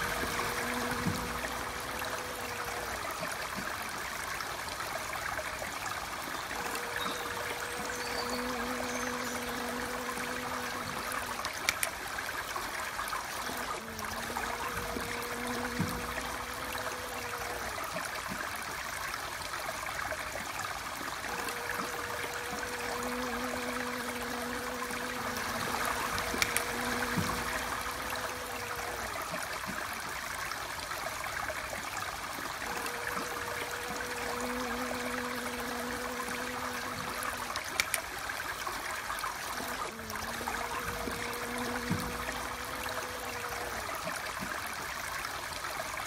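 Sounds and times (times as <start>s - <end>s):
honeybee wing buzz: 0.0s - 4.0s, 6.1s - 18.4s, 21.0s - 29.6s, 32.5s - 38.0s, 39.4s - 44.5s
steady rushing like water: 0.0s - 46.0s.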